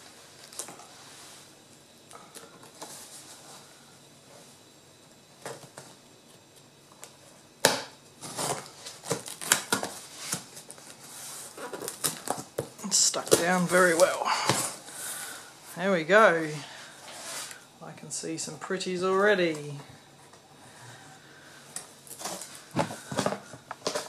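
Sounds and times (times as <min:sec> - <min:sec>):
packing tape cut and torn: 0:07.6 - 0:12.6.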